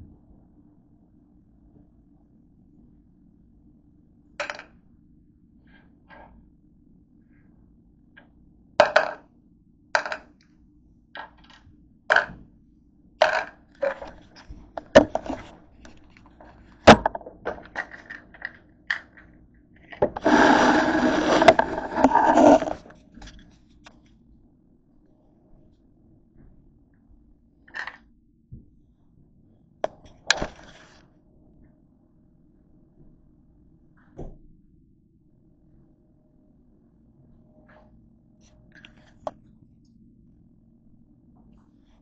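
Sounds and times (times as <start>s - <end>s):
scraping and rustling: 13.8s - 17.0s, 20.1s - 23.7s.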